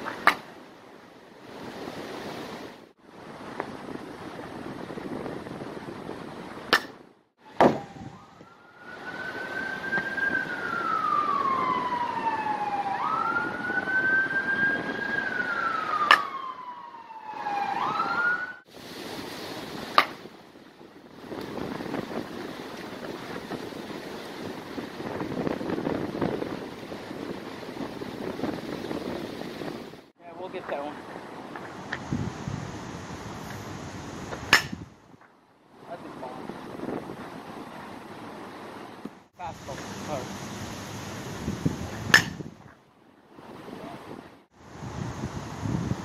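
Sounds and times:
steady outdoor hiss: 0.0 - 7.9, 18.6 - 28.6, 29.9 - 46.0
baseball bat cracking ball: 6.7 - 7.0, 16.0 - 16.3, 19.9 - 20.2, 34.4 - 34.8, 42.0 - 42.5
emergency vehicle siren wailing: 7.4 - 18.7.

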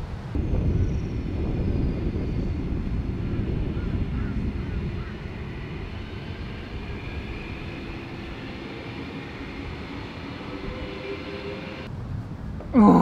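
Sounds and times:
wind buffeting microphone: 0.0 - 12.8.

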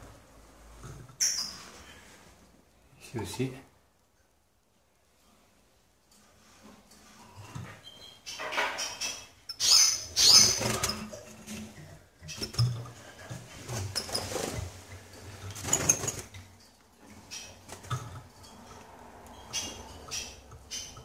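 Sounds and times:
high bird chirps: 7.9 - 10.8.

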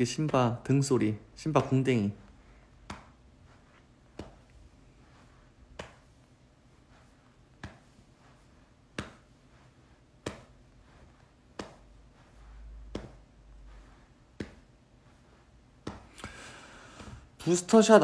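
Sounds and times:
hand patting a pet: 8.9 - 9.2, 14.3 - 14.7.

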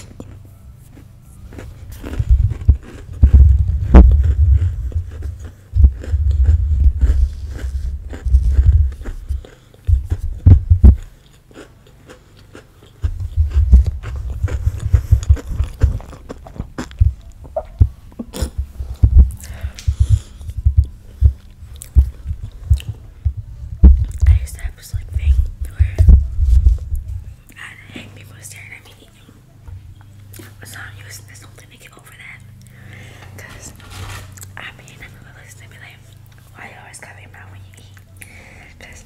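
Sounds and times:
chewing close to microphone: 0.0 - 27.4.

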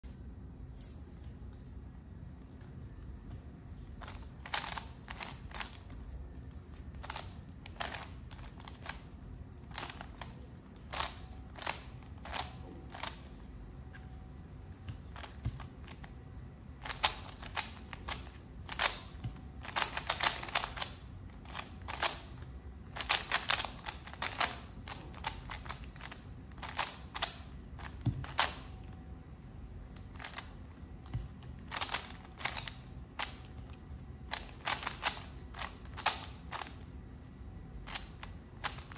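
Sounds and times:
puzzle cube plastic clicks: 4.0 - 5.9, 7.0 - 9.1, 9.7 - 13.3, 16.8 - 28.7, 31.6 - 36.8, 37.8 - 38.9.

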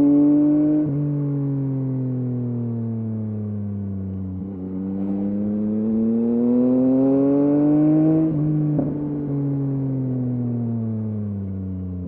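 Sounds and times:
motorcycle engine revving: 4.4 - 10.2.

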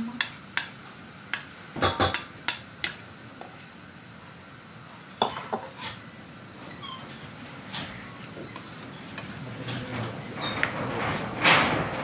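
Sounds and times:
spatula clacking against wok: 0.2 - 0.7, 1.3 - 3.0.

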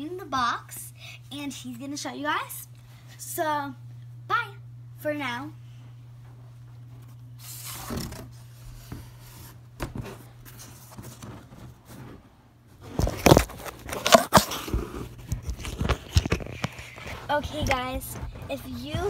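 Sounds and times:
packing tape ripping off roll: 7.4 - 8.4, 12.8 - 17.3
cardboard flaps folding and scraping: 7.4 - 19.0.

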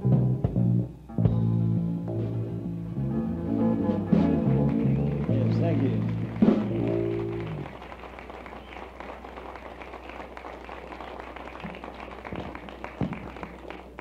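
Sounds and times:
low recording hum: 0.0 - 14.0
audience applause: 4.4 - 14.0.

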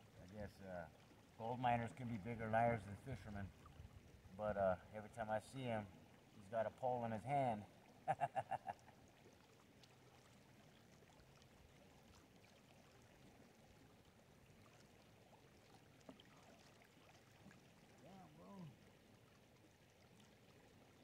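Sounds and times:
river water washing: 0.0 - 21.0
man laughing: 8.0 - 8.9.

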